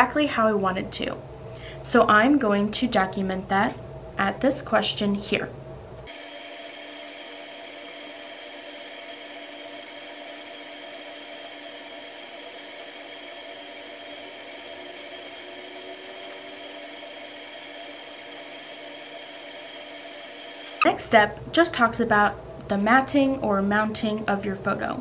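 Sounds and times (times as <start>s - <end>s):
steady hum and whir: 0.0s - 25.0s.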